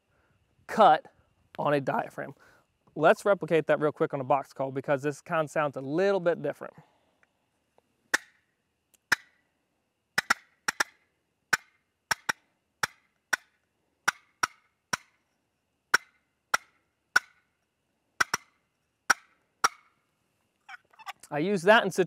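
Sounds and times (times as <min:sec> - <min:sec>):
turkey box call clucks: 0:08.1 - 0:09.4, 0:10.2 - 0:15.2, 0:15.9 - 0:17.5, 0:18.2 - 0:20.0, 0:20.6 - 0:21.4.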